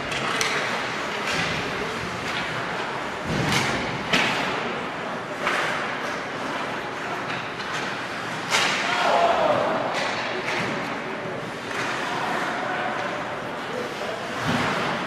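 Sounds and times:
hockey sticks: 0.0s - 15.0s
skates on ice: 11.4s - 15.0s.

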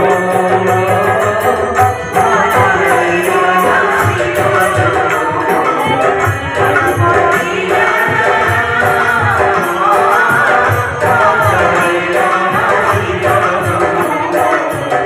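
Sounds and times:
folk music with drums: 0.0s - 15.0s
jingling percussion: 0.0s - 15.0s.

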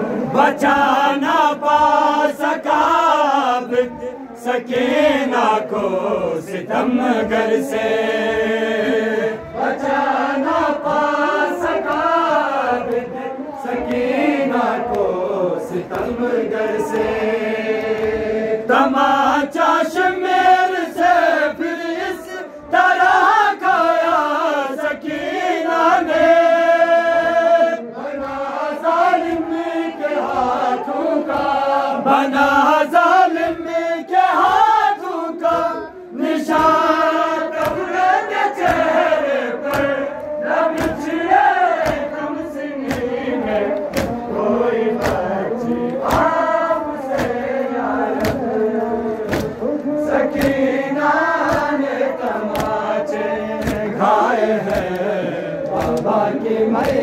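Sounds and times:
men chanting in unison: 0.0s - 57.0s
chest-beating slaps: 36.5s - 38.0s, 38.6s - 42.2s, 42.8s - 52.9s, 53.5s - 57.0s.

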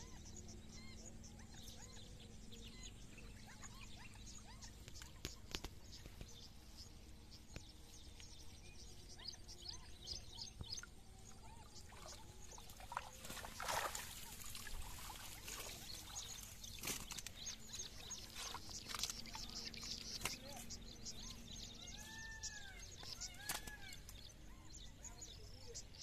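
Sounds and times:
small birds chirping: 0.0s - 26.0s
water splashing and pouring: 11.9s - 16.5s.

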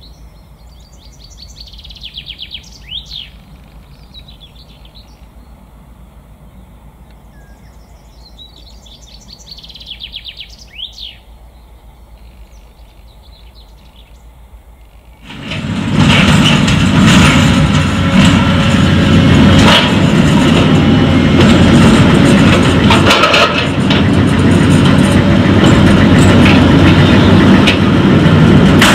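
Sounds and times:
birds calling faintly: 0.0s - 15.3s
heavy diesel machinery running: 15.2s - 28.9s
metallic clanks and rattles: 15.2s - 28.9s.

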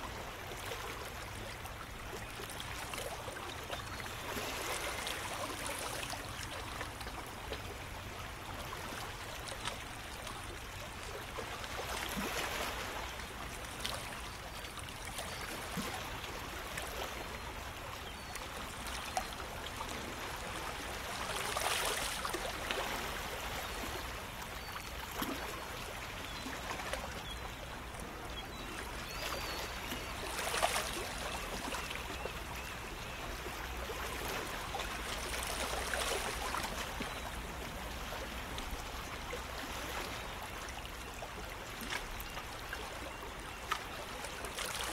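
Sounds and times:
water lapping among rocks: 19.8s - 24.0s.

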